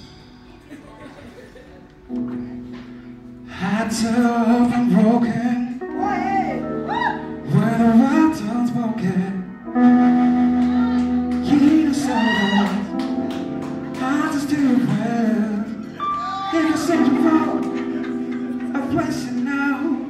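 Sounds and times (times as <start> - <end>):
live jazz band playing: 5.8 - 20.0
saxophone melody: 9.5 - 14.0.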